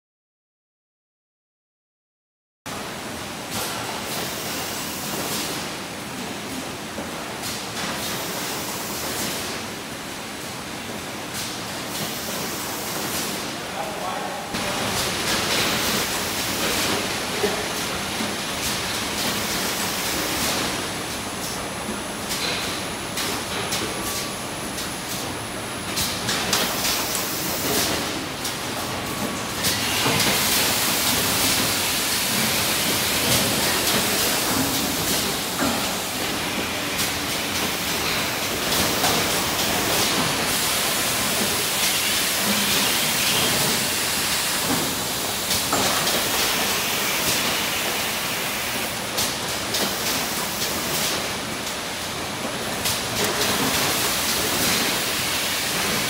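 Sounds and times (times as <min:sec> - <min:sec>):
machine clicks and clatters: 0:25.9 - 0:43.9, 0:48.9 - 0:56.0.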